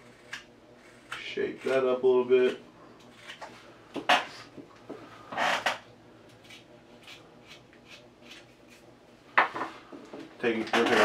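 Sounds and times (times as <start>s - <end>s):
knife scraping wood: 6.4s - 8.9s.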